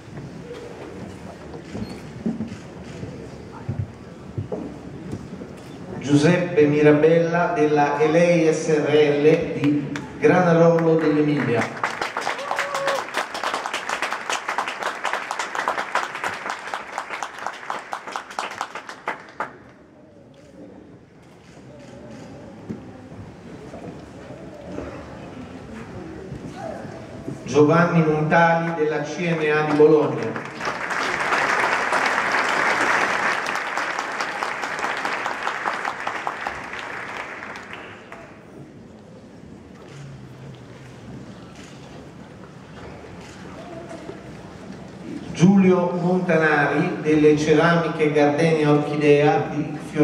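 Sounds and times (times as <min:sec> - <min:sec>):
audience applauding: 0:09.6 - 0:19.8, 0:29.2 - 0:38.6.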